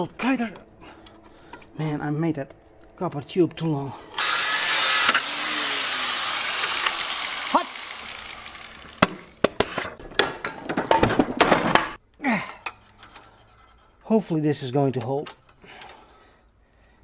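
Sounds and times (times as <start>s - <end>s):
grinder disc whine winding down: 3.2s - 9.4s.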